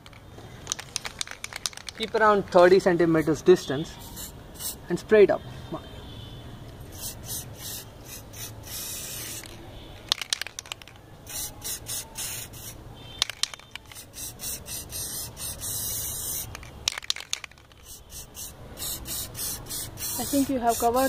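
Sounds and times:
spray can hissing: 0:04.0 - 0:04.8, 0:06.9 - 0:09.6, 0:11.2 - 0:21.0.

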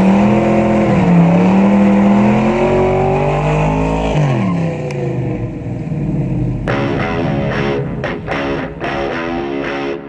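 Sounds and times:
car engine revving high: 0:00.0 - 0:10.0.

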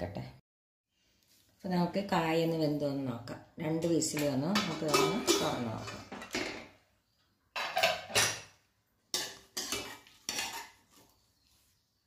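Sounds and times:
metal spoon scraping a steel pot: 0:04.6 - 0:06.1, 0:09.2 - 0:11.2.

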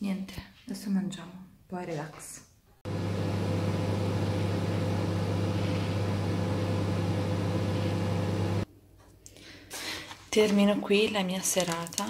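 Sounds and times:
microwave oven humming: 0:02.9 - 0:08.6
fan noise: 0:02.9 - 0:08.7.

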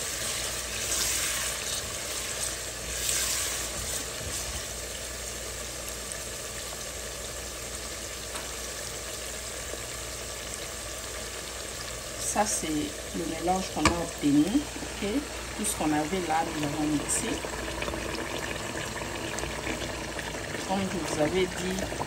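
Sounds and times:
spatula stirring: 0:00.0 - 0:04.7
onions sizzling in oil: 0:00.0 - 0:22.0.

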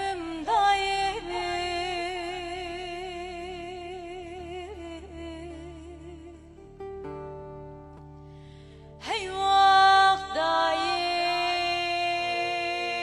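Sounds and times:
woman singing long note: 0:09.0 - 0:13.0.

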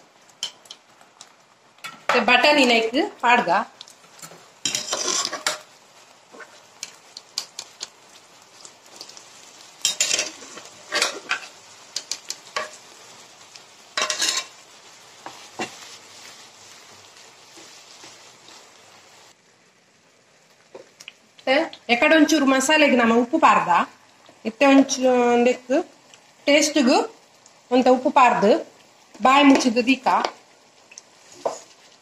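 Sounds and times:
gravy sizzling in a pan: 0:00.0 - 0:32.0
wooden spatula scraping and stirring: 0:04.0 - 0:19.3, 0:31.2 - 0:32.0.

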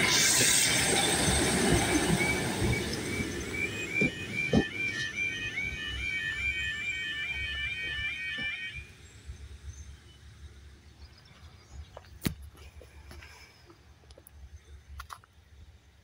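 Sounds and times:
level crossing warbling alarm: 0:01.7 - 0:08.9.

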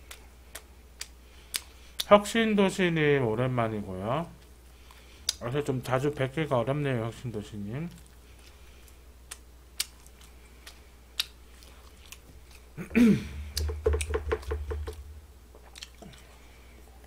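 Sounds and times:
mouth noises and chewing: 0:00.0 - 0:02.2, 0:07.9 - 0:12.8, 0:15.5 - 0:17.0.

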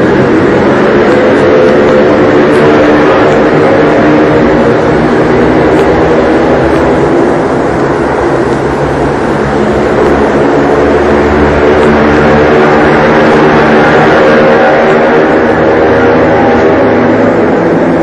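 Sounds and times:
deep rumble: 0:00.0 - 0:18.0
motorcycle-like engine drone: 0:00.0 - 0:18.0.

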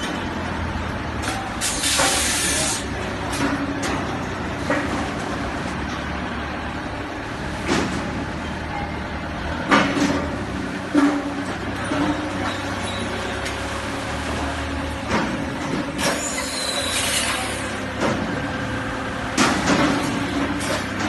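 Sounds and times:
burst of hiss: 0:01.6 - 0:02.8.

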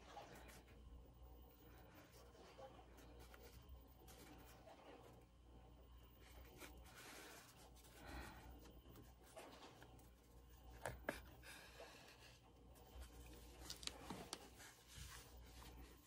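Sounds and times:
material rustling and crinkling: 0:06.2 - 0:16.0.

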